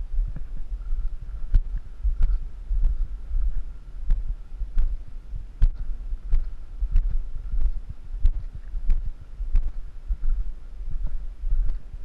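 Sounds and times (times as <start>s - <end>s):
low microphone rumble: 0.0s - 12.0s.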